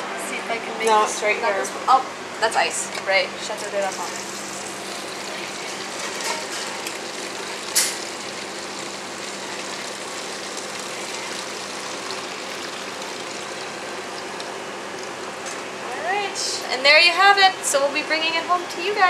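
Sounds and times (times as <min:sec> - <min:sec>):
water filling plastic bottle: 0:04.2 - 0:15.4.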